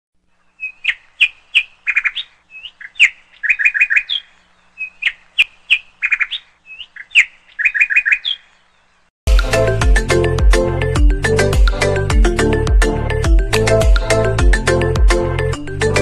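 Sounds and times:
small bird chirping and trilling: 0.4s - 8.9s.

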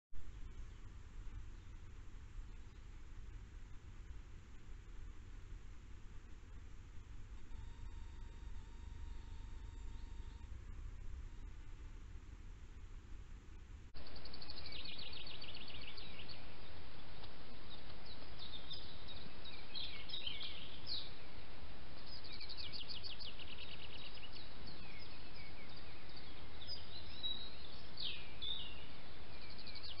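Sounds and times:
songbirds singing: 0.2s - 3.0s, 7.4s - 11.7s, 14.0s - 30.0s
microphone hiss: 0.2s - 30.0s.

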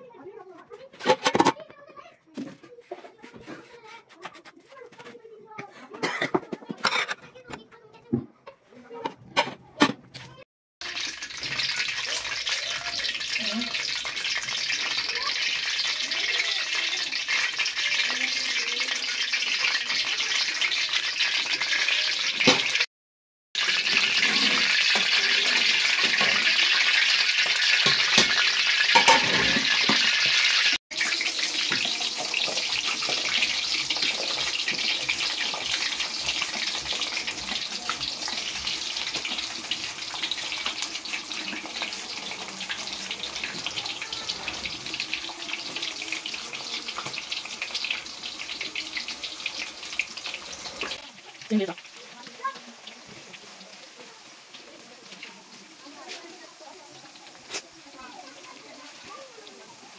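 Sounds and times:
potato slices frying in oil: 10.8s - 22.9s, 23.6s - 59.9s.

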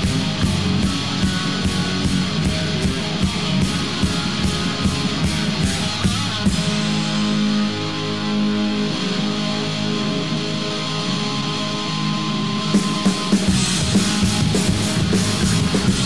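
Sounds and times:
fast drum beat: 0.0s - 7.2s, 12.8s - 16.0s
electric guitar: 0.0s - 16.0s.

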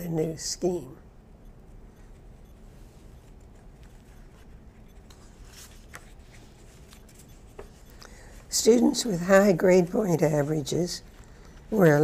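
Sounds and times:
paper pages rustling: 3.3s - 8.5s.

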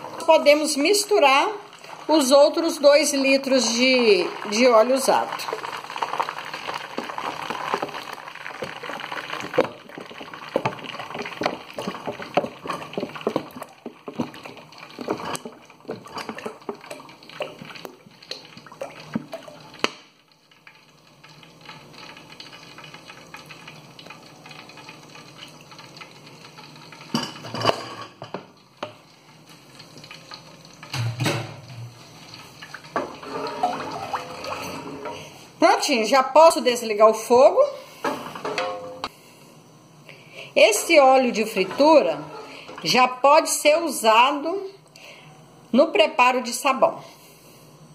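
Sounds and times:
foaming oil bubbling: 0.0s - 27.6s, 28.2s - 38.4s.

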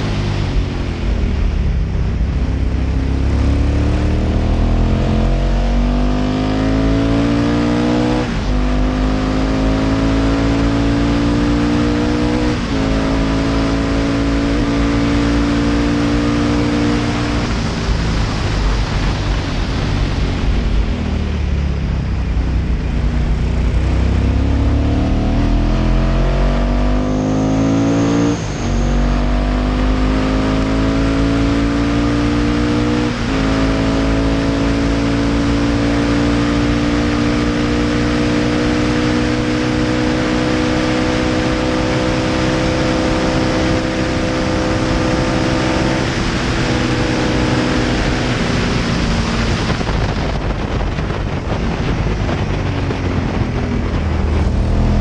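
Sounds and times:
wind rush: 0.0s - 27.0s, 27.6s - 55.0s
racing engine at full throttle: 0.0s - 55.0s.

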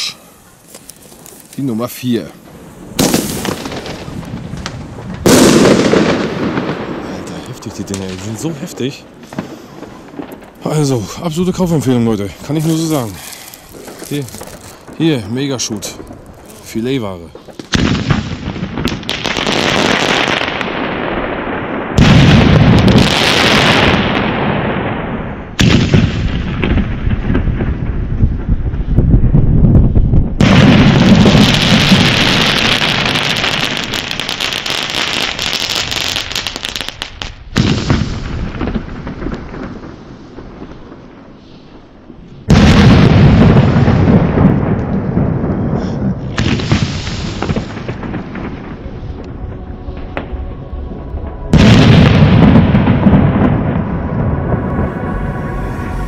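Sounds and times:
firework shells bursting: 2.4s - 7.1s, 12.4s - 20.6s.

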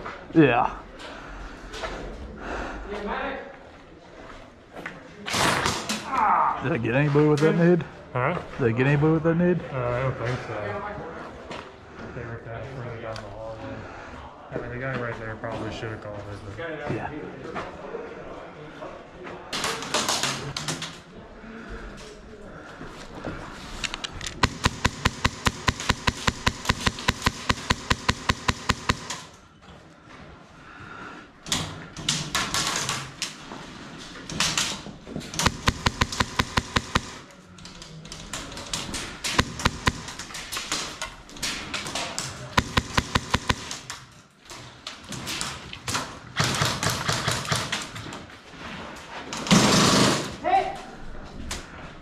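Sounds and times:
taps and knocks: 24.4s - 29.1s, 35.4s - 37.1s, 39.4s - 40.2s, 42.6s - 43.7s
airsoft gunfire bursts: 24.4s - 29.4s, 35.4s - 37.2s, 39.3s - 40.3s, 42.6s - 43.9s.

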